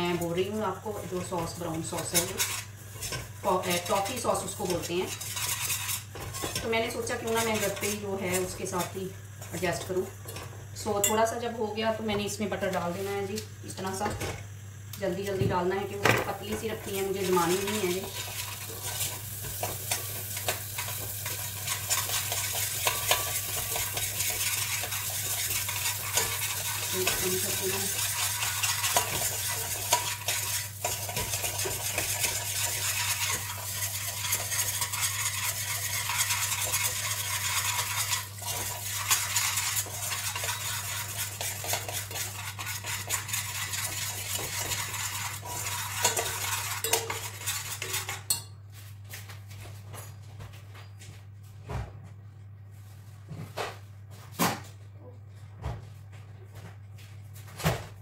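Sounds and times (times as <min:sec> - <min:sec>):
sugar and butter sizzling: 0:00.0 - 0:48.6
spoon clinking against pan: 0:46.0 - 0:47.2, 0:48.3 - 0:48.6.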